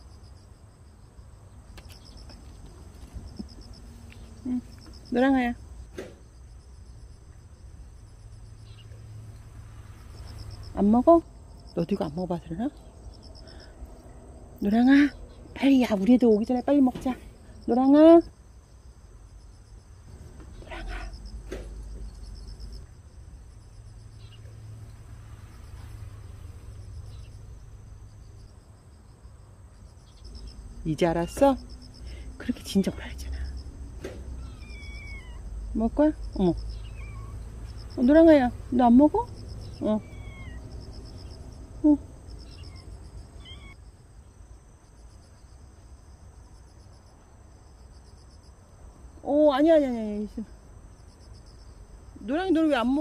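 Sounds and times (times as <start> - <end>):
insects chirping: 0.0 - 53.0.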